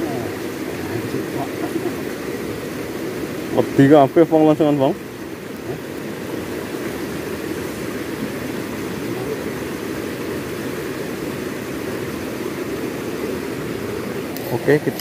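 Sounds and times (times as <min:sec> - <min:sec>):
rushing rocky stream: 0:00.0 - 0:15.0.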